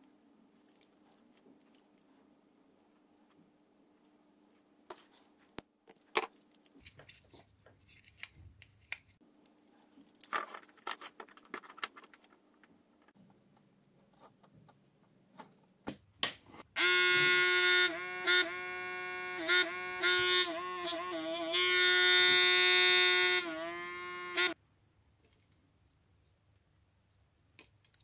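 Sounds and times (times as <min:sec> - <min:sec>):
plastic parts clicking and rustling: 0:00.5 - 0:03.4, 0:04.0 - 0:15.9.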